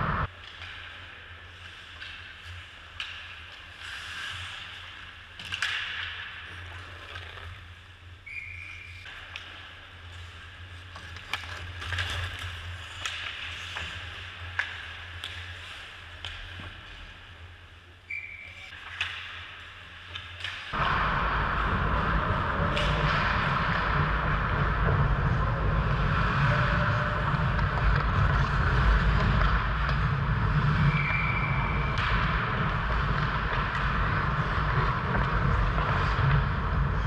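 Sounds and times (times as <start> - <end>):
loud steady rush: 0.0 - 0.3, 20.8 - 37.0
steady low hum: 0.0 - 0.3, 20.8 - 37.0
skate blades scraping ice: 0.2 - 17.5, 18.1 - 37.0
hockey sticks and puck knocking: 22.6 - 37.0.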